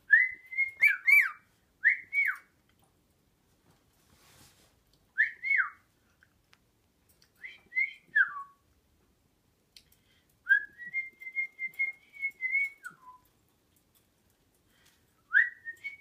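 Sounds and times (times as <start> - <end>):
cockatiel whistling: 0.1 - 2.5.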